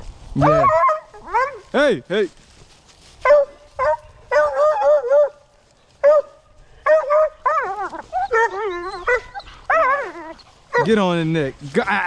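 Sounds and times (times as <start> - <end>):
hounds yelping and bawling: 0.4 - 1.7, 3.2 - 5.4, 6.0 - 11.0.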